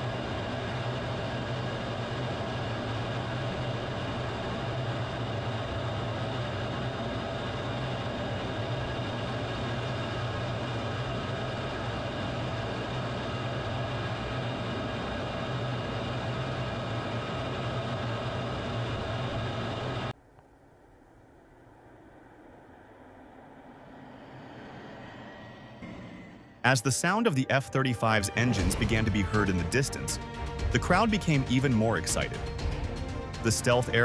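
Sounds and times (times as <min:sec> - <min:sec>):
jet engine running: 0:00.0 - 0:20.2, 0:21.6 - 0:34.0
whining tones: 0:21.4 - 0:34.0
rushing noise: 0:22.1 - 0:34.0.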